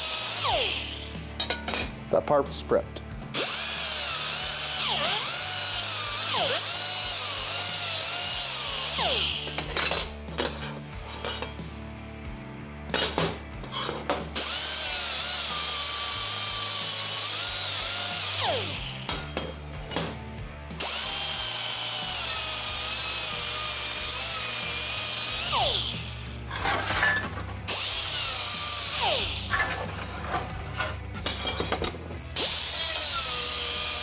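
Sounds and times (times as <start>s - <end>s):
pneumatic die grinder whining: 0.0s - 1.3s, 3.3s - 11.6s, 13.6s - 34.0s
steel parts clinking: 1.3s - 2.0s, 9.2s - 11.6s, 18.7s - 20.2s, 25.0s - 32.7s.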